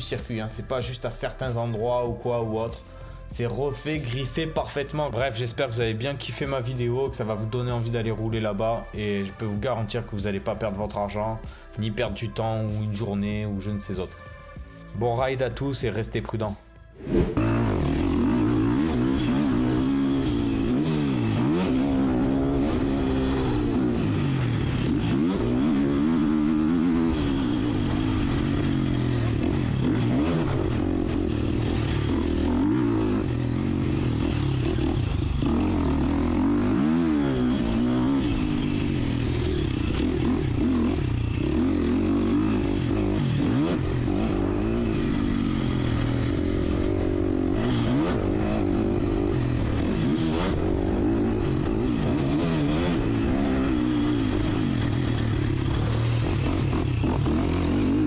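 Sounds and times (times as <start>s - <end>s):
motocross engine revving: 17.0s - 58.0s.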